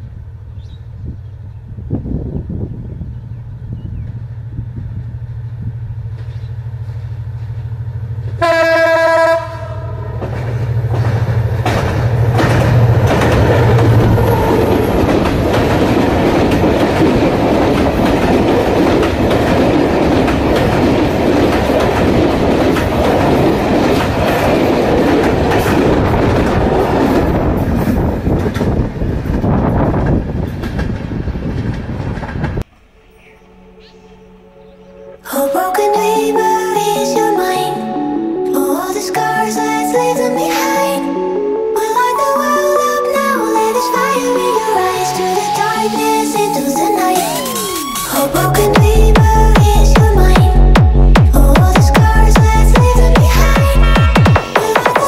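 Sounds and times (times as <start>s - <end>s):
diesel locomotive engine hum: 0.0s - 35.8s
train horn blast: 8.4s - 10.6s
train wheels clattering on bridge: 10.1s - 32.6s.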